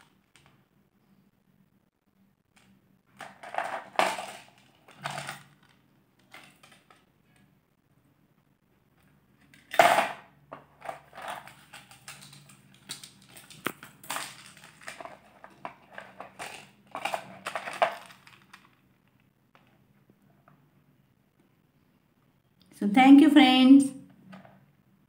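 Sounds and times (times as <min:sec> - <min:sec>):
crinkly handling noise: 0:02.5 - 0:07.6, 0:10.6 - 0:19.8
jewellery clinking and rattling: 0:03.2 - 0:07.0, 0:10.8 - 0:18.9.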